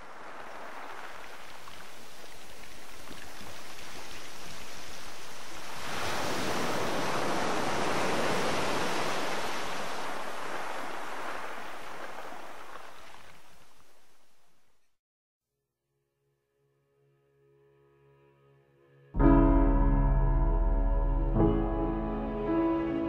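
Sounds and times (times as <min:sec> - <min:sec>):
waves washing on shore: 0:00.0 - 0:13.9.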